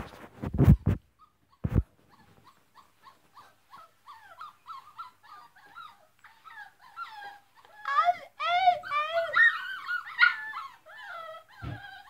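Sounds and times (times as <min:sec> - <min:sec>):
dogs whining in high yips: 0:02.2 - 0:12.0
thump: 0:11.6 - 0:11.8.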